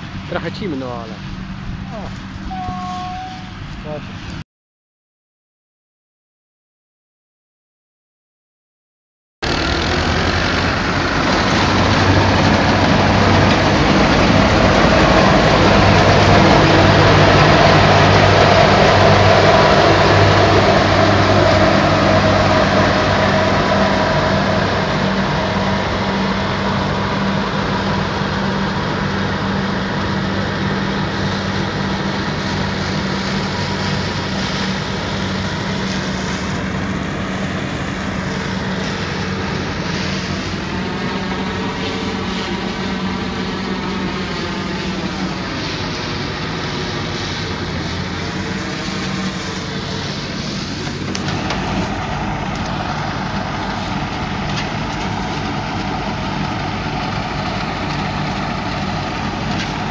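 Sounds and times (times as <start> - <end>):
combine harvester engine droning: 0.0 - 4.4, 9.4 - 59.9.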